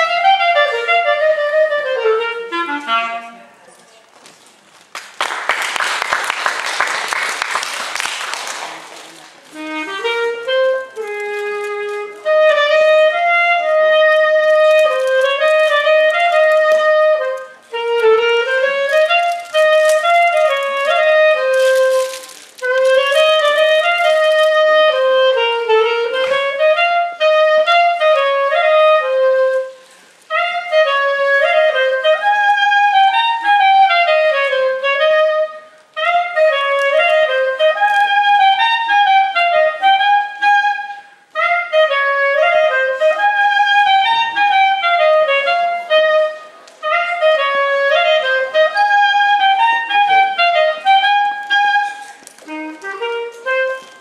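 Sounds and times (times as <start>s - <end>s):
solo clarinet melody: 0.0s - 3.8s, 9.1s - 54.0s
applause: 4.9s - 9.4s.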